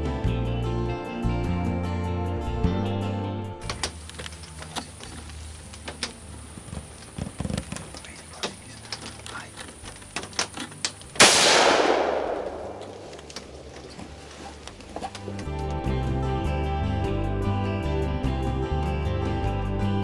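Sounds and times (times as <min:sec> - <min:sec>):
rifle shot echoing: 0:11.2 - 0:13.9.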